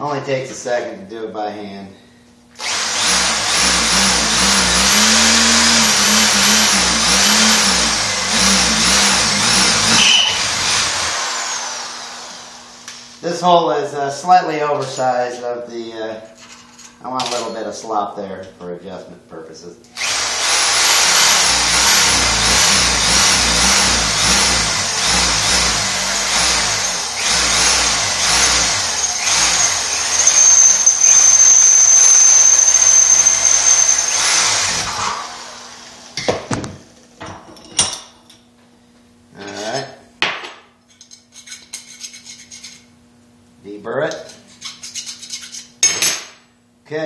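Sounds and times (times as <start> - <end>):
drill bit squealing: 2.6 - 12.2, 20.0 - 35.0
electric drill boring metal: 2.6 - 13.0, 20.0 - 36.2.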